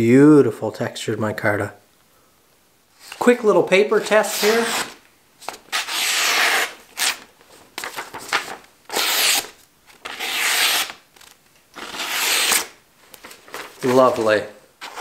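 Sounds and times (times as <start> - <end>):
blade slicing paper: 4.0 - 7.2, 7.8 - 12.8
paper rustling: 4.0 - 15.0.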